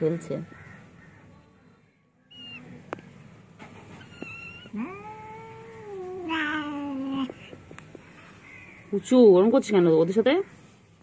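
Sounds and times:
cat meowing: 4.0 - 7.3.

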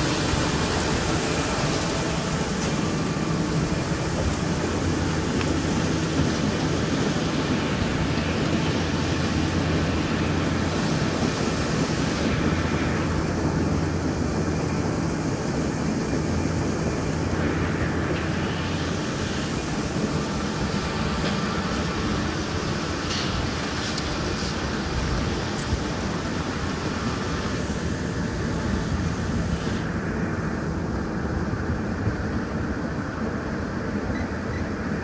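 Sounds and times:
harvester machine drone: 0.0 - 35.0.

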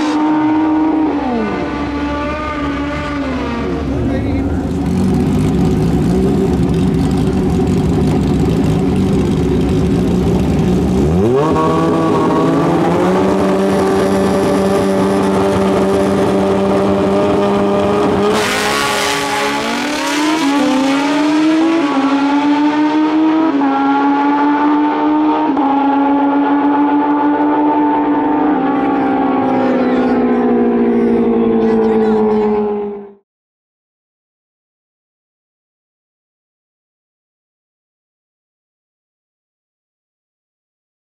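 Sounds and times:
motorcycle engine at full throttle: 0.0 - 33.2.

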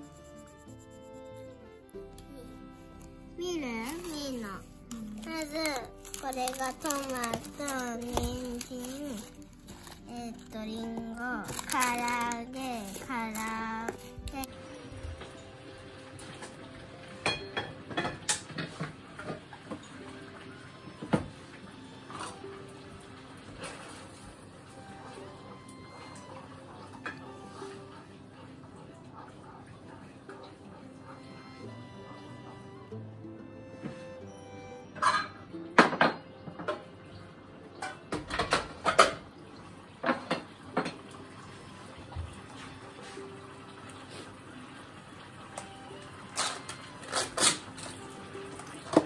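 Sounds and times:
dishes and utensils clattering: 16.2 - 20.1, 23.5 - 24.4, 26.9 - 27.8, 35.0 - 36.9, 37.8 - 41.2, 46.3 - 49.0
kitchen knocks and clinks: 17.2 - 19.4, 37.8 - 39.2.

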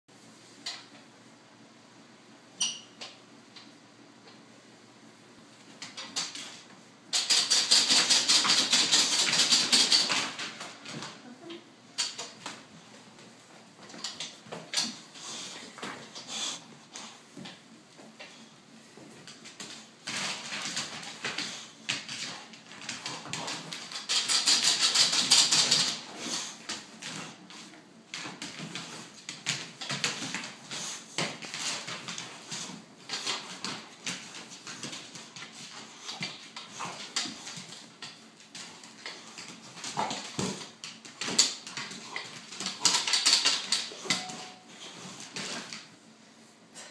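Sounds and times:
puppy claws scrabbling on floor: 5.7 - 11.2, 19.0 - 46.0.

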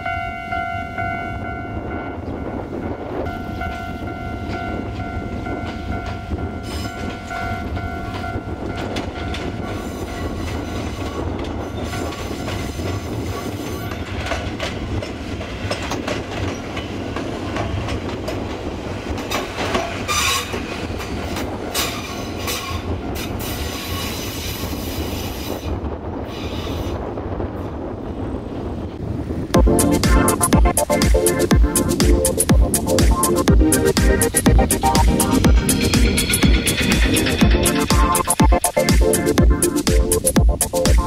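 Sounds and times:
crossing warning bell ringing: 0.0 - 14.2
train rumbling: 0.0 - 41.0
wheels clicking over rail joints: 3.6 - 24.3
wheels squealing: 19.8 - 20.8.

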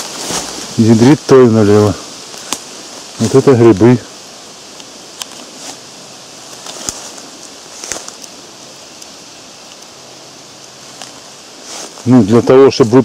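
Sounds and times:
soft rustling: 0.0 - 1.2, 5.2 - 8.5, 10.7 - 13.0.

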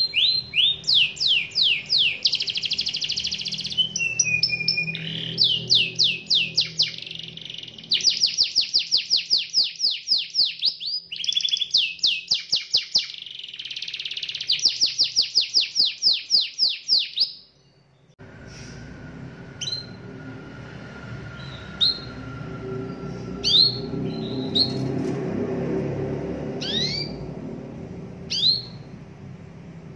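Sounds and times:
canary short chirps: 0.0 - 17.8, 26.6 - 27.2, 28.3 - 28.9
canary singing rolling trills: 0.0 - 29.6
steady background hum: 17.8 - 29.9.

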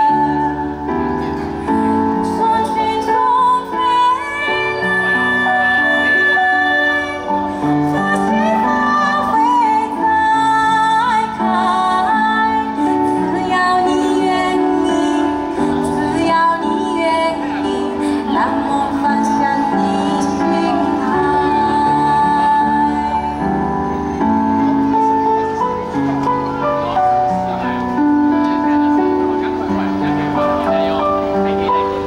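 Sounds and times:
woman singing slow song: 0.0 - 23.8
instrumental accompaniment: 0.0 - 32.0.

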